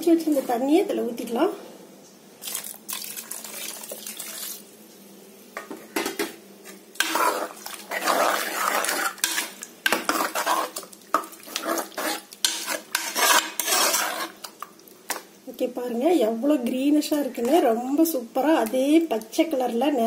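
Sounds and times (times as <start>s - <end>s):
ladle stirring in a metal pot: 7.0s - 15.2s.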